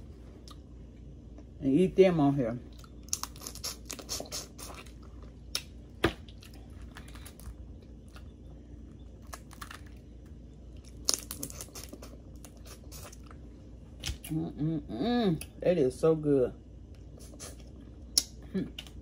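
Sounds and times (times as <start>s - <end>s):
chewing: 2.7s - 14.3s
shells cracking and snapping: 9.2s - 12.6s.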